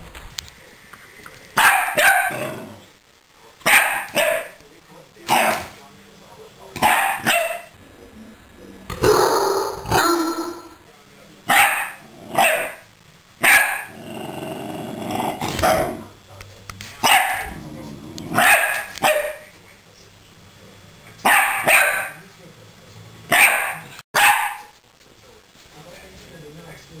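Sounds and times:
small dog barking: 0:01.6 - 0:02.5, 0:03.6 - 0:04.6, 0:06.8 - 0:07.7, 0:11.5 - 0:12.8, 0:13.4 - 0:14.0, 0:17.0 - 0:17.6, 0:18.3 - 0:19.5, 0:21.2 - 0:22.2, 0:23.3 - 0:24.8
dog growling: 0:02.2 - 0:02.9, 0:08.9 - 0:10.8, 0:11.9 - 0:12.6, 0:13.8 - 0:16.2, 0:17.4 - 0:18.5.

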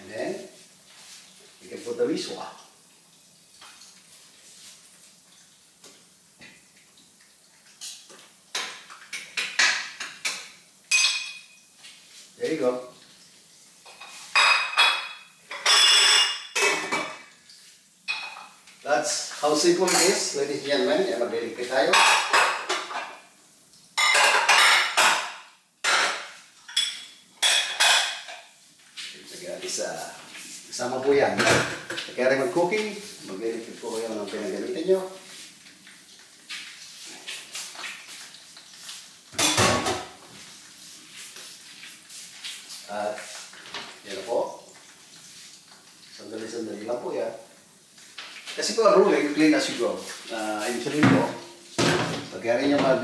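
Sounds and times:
kitchenware clinking on a pot: 0:07.8 - 0:11.6, 0:13.8 - 0:17.2, 0:19.8 - 0:20.3, 0:21.9 - 0:23.2, 0:24.0 - 0:28.5, 0:39.4 - 0:40.1
pans and utensils clanking: 0:07.8 - 0:11.6, 0:13.8 - 0:17.3, 0:18.1 - 0:18.6, 0:19.5 - 0:20.4, 0:21.6 - 0:23.2, 0:24.0 - 0:28.6, 0:31.1 - 0:32.4, 0:39.3 - 0:40.2, 0:48.2 - 0:53.0.

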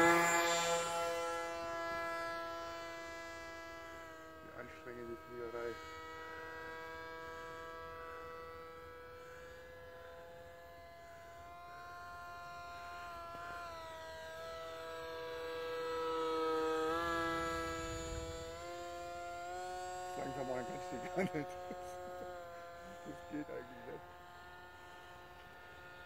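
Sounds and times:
model plane motor whine: 0:00.0 - 0:26.0.

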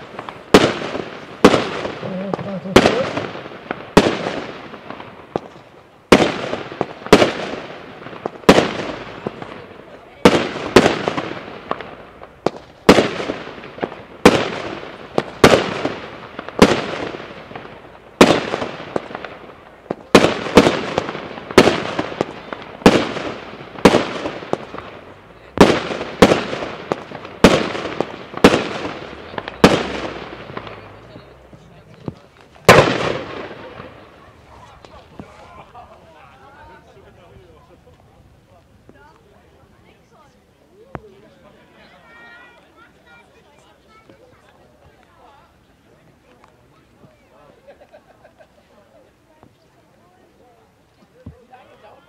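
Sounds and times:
firework bangs echoing: 0:00.0 - 0:36.2.

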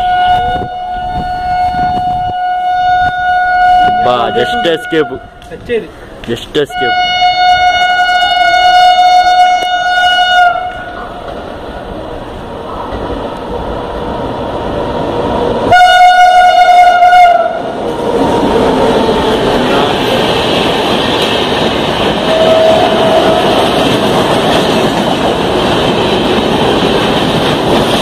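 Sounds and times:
train horn blasts: 0:00.0 - 0:05.4, 0:06.6 - 0:11.0, 0:15.7 - 0:17.7, 0:22.2 - 0:24.0
train rushing past: 0:00.0 - 0:28.0.

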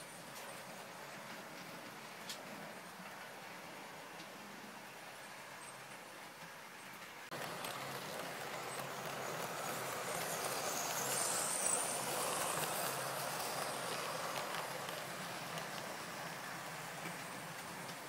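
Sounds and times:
model train rumbling whirr: 0:06.9 - 0:18.0.

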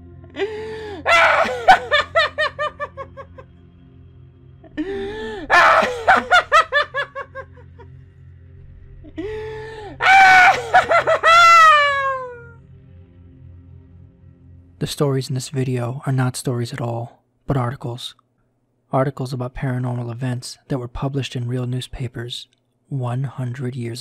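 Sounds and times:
low music drone: 0:00.0 - 0:17.0
long falling cry: 0:00.4 - 0:03.2, 0:04.8 - 0:07.4, 0:09.1 - 0:12.6
cartoon character laughing: 0:01.0 - 0:03.5, 0:05.5 - 0:07.6, 0:10.0 - 0:12.4.

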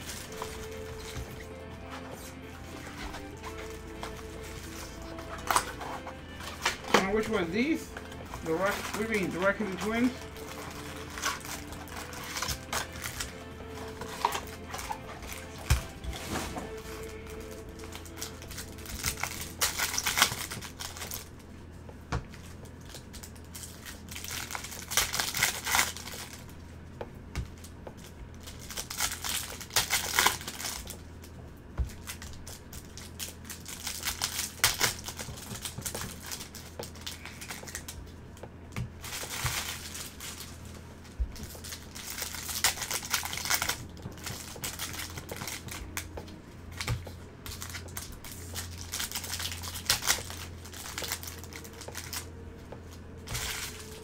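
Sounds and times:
foil wrappers crinkling: 0:00.0 - 0:26.8, 0:27.4 - 0:54.0
steady low hum: 0:00.0 - 0:54.0.

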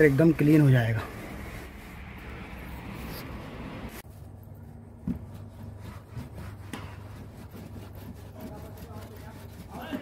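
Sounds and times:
sponge scrubbing door panel: 0:00.0 - 0:02.6, 0:04.8 - 0:10.0.

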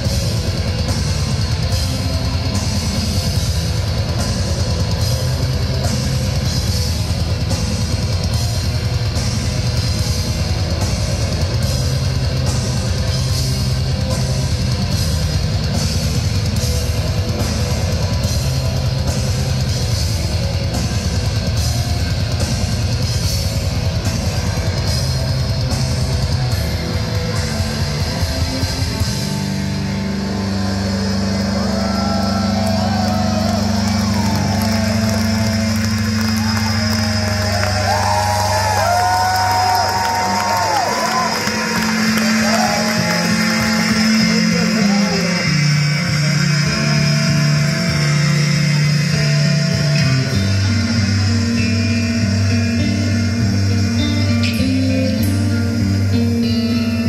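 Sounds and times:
distorted guitars: 0:00.0 - 0:57.0
driving drums and cymbals: 0:00.0 - 0:57.0
low droning chord: 0:41.8 - 0:57.0.

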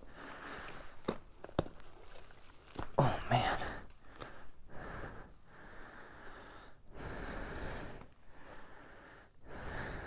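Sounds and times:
person breathing: 0:03.0 - 0:10.0.

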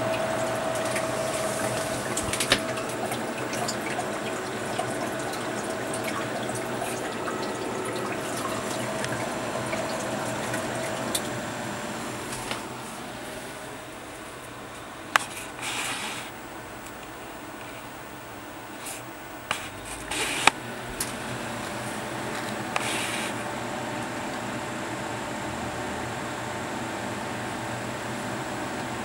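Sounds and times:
water splashing into tub: 0:00.0 - 0:12.7
water pump motor whine: 0:00.0 - 0:29.0.

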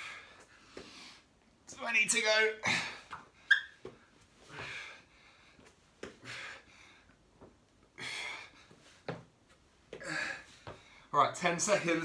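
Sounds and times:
man breathing hard: 0:00.0 - 0:01.4, 0:04.4 - 0:07.2, 0:07.9 - 0:08.9, 0:10.0 - 0:11.1.

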